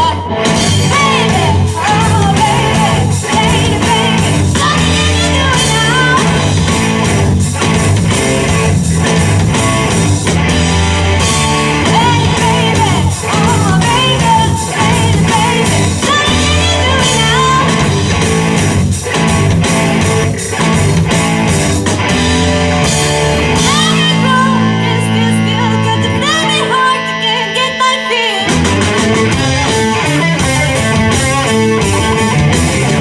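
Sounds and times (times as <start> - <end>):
woman singing: 0.0 - 6.4, 11.8 - 17.9, 23.6 - 28.6
bass guitar: 0.0 - 33.0
drums: 0.0 - 33.0
electric guitars: 0.0 - 33.0.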